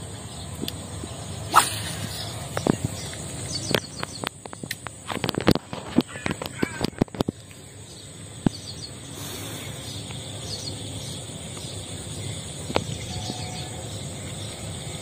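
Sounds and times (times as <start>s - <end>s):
outdoor background noise: 0.0s - 15.0s
faint bird chirps: 6.0s - 15.0s.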